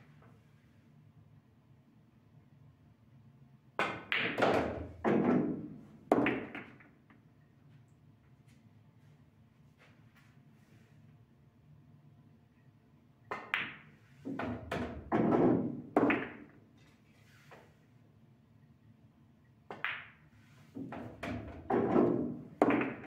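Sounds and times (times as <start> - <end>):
pool balls clacking: 3.8 - 6.9, 13.3 - 13.8, 14.4 - 16.6, 20.8 - 23.0.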